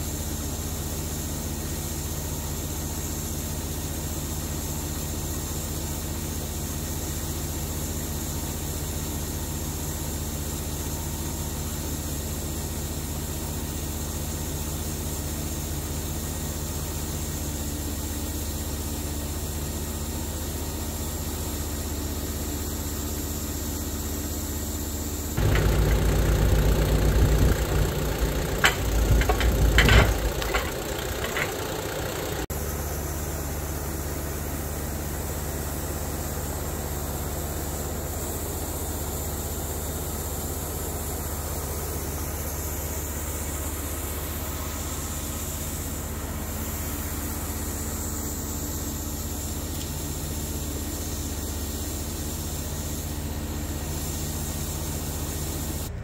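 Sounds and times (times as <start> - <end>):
engine running: 25.4 - 32.5
rough sound with sharp knocks: 25.4 - 32.5.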